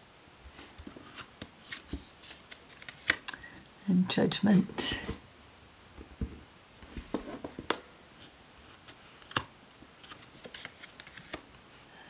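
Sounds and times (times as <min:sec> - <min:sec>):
cards sliding and rustling: 0:00.6 - 0:03.6, 0:06.8 - 0:11.5
soft thump: 0:06.0 - 0:06.4.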